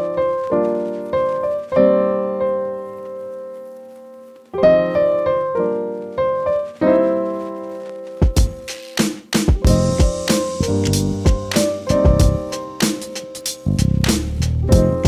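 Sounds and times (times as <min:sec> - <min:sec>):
piano chords: 0:00.0 - 0:15.0.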